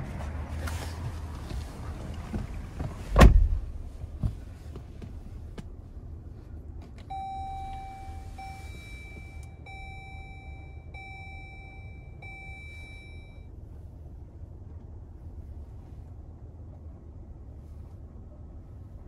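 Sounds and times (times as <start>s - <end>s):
dashboard warning chime: 7.0s - 13.5s.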